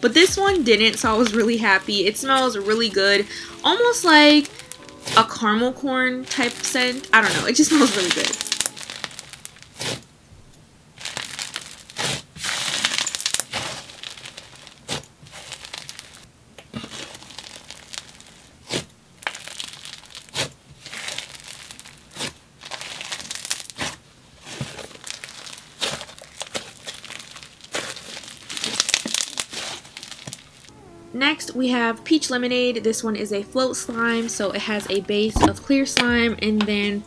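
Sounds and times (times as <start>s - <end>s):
slime crackling: 0.0s - 5.2s, 6.3s - 10.0s, 11.0s - 24.0s, 24.6s - 30.7s.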